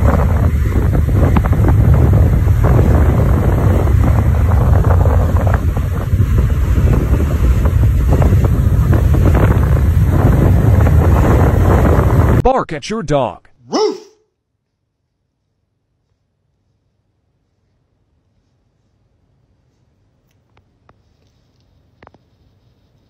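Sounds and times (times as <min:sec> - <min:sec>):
wind buffeting microphone: 0:00.0 - 0:12.4.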